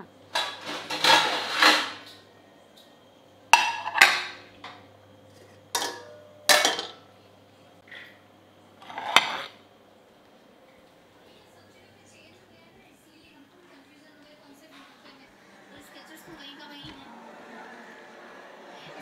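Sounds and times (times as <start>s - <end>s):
steady low hum: 0.0s - 19.0s
steel cookware clinking and scraping: 0.3s - 2.1s, 5.4s - 7.0s.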